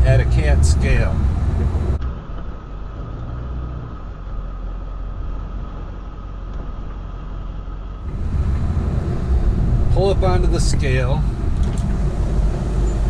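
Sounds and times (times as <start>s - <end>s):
engine and road rumble: 0.0s - 13.0s
faint steady whine: 7.9s - 13.0s.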